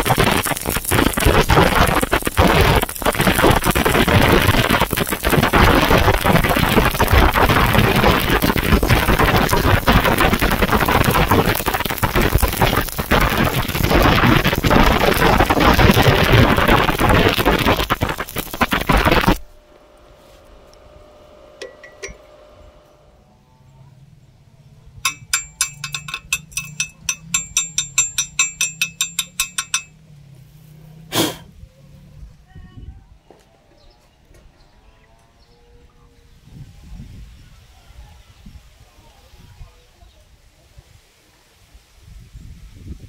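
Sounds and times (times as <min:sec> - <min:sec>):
welding arc crackling: 0:00.0 - 0:19.6, 0:25.1 - 0:30.0
metallic clinks of slag chipping: 0:25.0 - 0:30.0.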